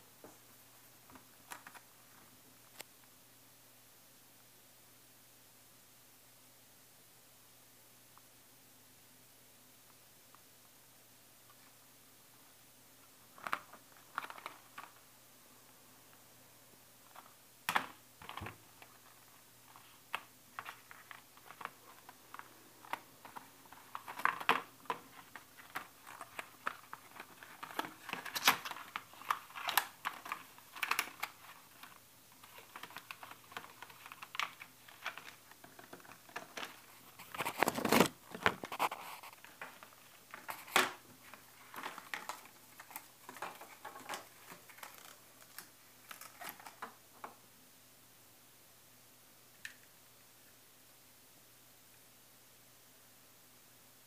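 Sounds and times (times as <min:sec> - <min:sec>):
plastic bag crinkling: 0:17.0 - 0:47.0
packaging clicks and taps: 0:19.7 - 0:47.4.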